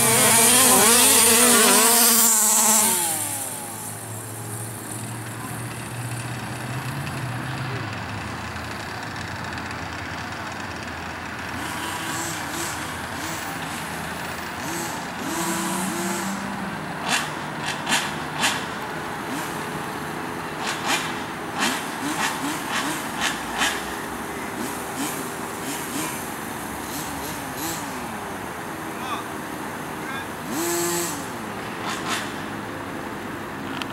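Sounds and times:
sharp throttle blips: 0.0 - 5.6, 11.5 - 18.7, 30.1 - 32.4
rc car engines running: 0.0 - 19.9, 20.6 - 29.3, 30.0 - 32.6.

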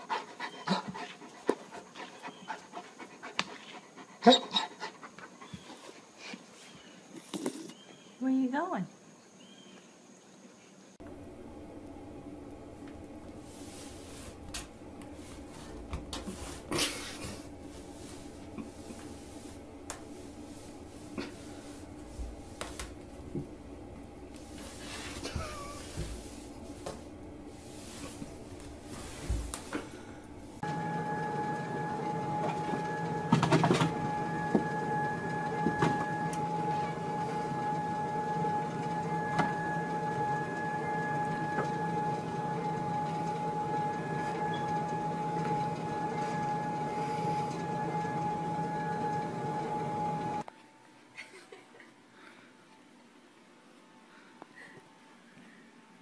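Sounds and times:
steady low hum: 11.0 - 50.4
rug scraping on tile floor: 13.0 - 50.5.

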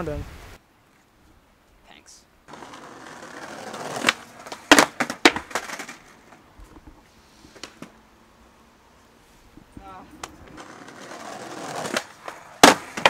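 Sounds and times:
skateboard pop: 2.5 - 6.4, 9.7 - 13.0
skateboard slapping and clattering: 2.5 - 6.4, 10.1 - 13.0
skateboard wheels rolling on brick: 2.5 - 8.0, 9.5 - 13.0.

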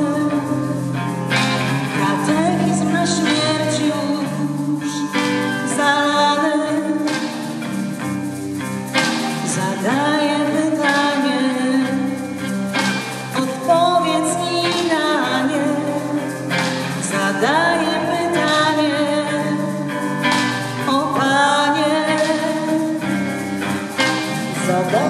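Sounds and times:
bass guitar: 0.0 - 25.0
electric guitar: 0.0 - 25.0
women singing: 9.5 - 12.2.

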